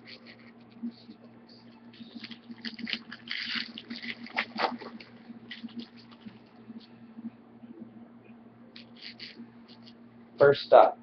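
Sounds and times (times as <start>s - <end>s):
card pack wrapper crinkling and tearing: 2.1s - 6.4s, 8.8s - 9.9s.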